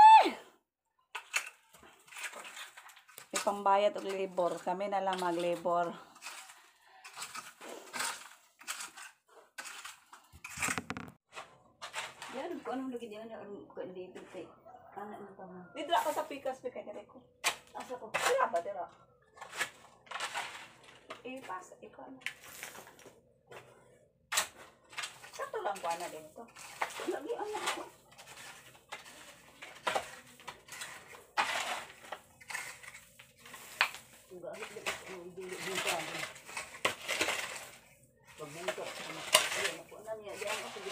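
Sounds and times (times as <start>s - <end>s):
tool digging in soil and rubble: 1.1s - 12.9s, 15.9s - 16.5s, 17.4s - 18.8s, 19.4s - 23.7s, 24.3s - 40.9s.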